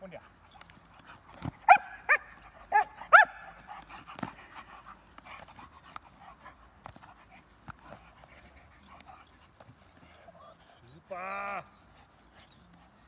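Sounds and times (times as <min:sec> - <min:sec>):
dog barking: 0:01.6 - 0:03.5.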